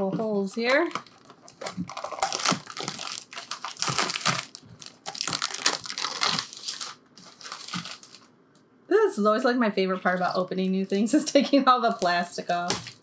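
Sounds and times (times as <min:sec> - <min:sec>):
plastic film crinkling: 0:00.7 - 0:08.3, 0:11.9 - 0:13.0.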